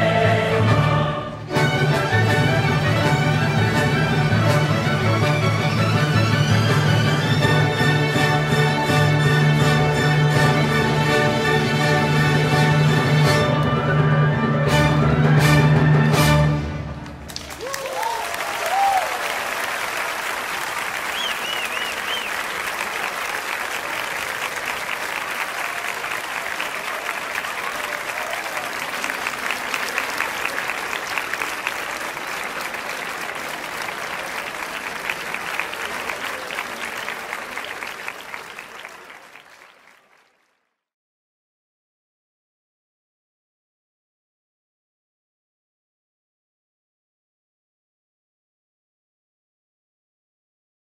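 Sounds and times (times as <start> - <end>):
crowd applauding: 17.0 - 40.8
crowd cheering: 17.1 - 40.6.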